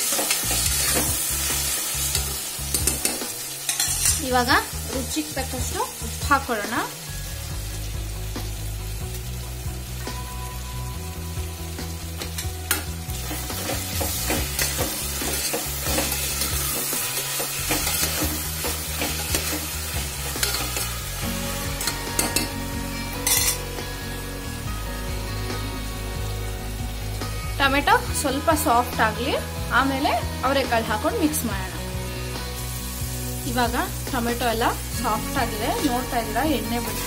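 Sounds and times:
spoon scraping a pan: 0.0s - 4.2s, 12.4s - 21.0s, 23.2s - 23.6s
vegetables sizzling in oil: 0.0s - 37.0s.

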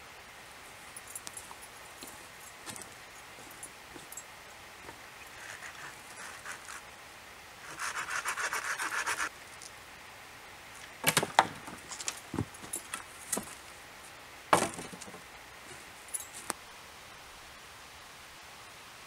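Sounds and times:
small saw cutting wood: 5.3s - 6.9s, 7.6s - 9.3s
wooden poles knocking and clattering: 11.0s - 13.6s, 14.5s - 15.2s.

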